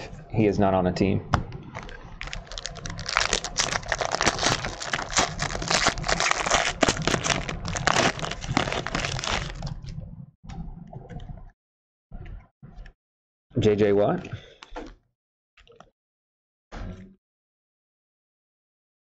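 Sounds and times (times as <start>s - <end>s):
plastic wrapper crinkling and tearing: 1.7s - 9.9s.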